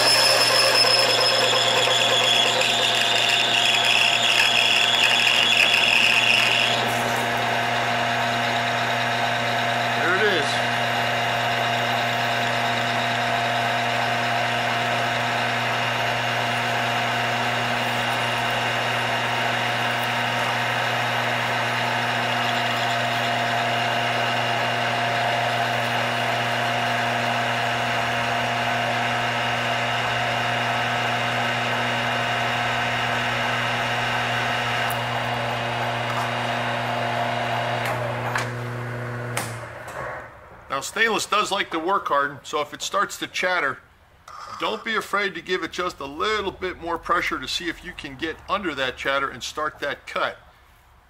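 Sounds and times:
lathe cutting steel whine: 0.0 - 41.6.

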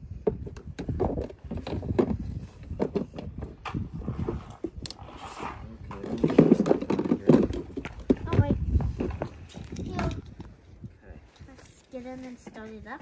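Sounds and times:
plastic knocks and clicks: 0.2 - 3.8, 6.0 - 10.2.

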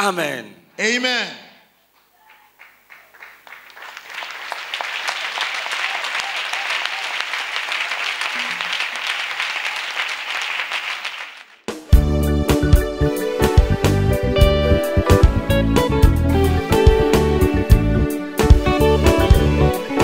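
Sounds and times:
large crowd applauding: 2.2 - 11.6
guitar and keyboard music: 11.8 - 20.0.

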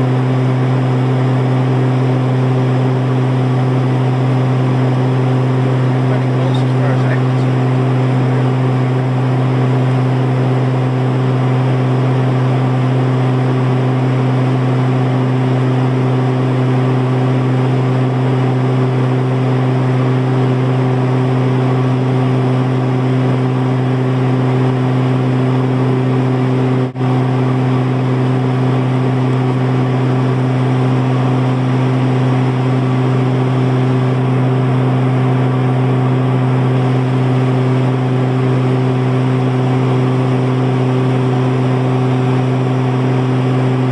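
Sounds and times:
aircraft cabin engine drone: 0.0 - 43.9.

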